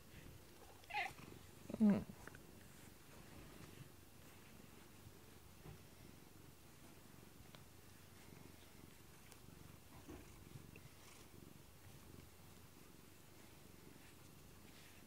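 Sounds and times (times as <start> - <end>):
cat purring: 0.0 - 15.0
faint clicks: 7.4 - 7.7.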